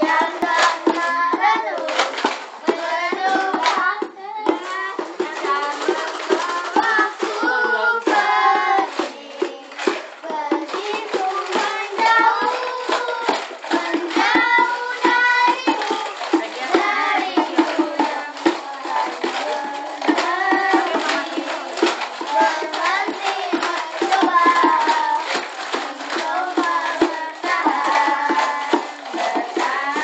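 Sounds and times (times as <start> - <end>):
children singing pop ballad: 0.0 - 30.0.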